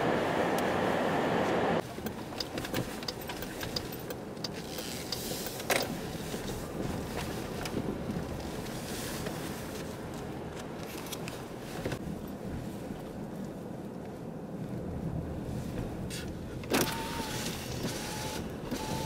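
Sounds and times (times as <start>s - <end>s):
road and engine noise: 0.0s - 19.0s
light clicks and rattles: 1.8s - 9.4s.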